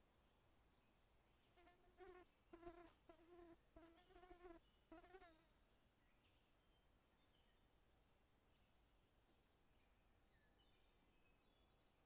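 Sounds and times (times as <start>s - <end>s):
flying insect buzzing: 1.6s - 5.5s.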